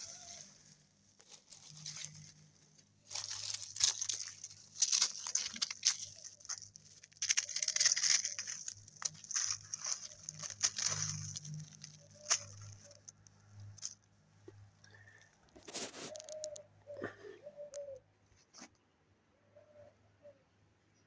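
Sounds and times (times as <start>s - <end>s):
leaf rustle: 0.0s - 14.0s
icy crunching and crackling: 0.0s - 16.6s.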